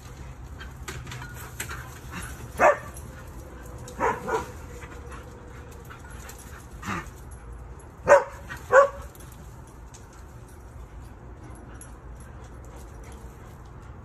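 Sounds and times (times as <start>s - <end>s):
dog barking: 2.6s - 2.9s, 4.0s - 4.6s, 8.0s - 9.1s.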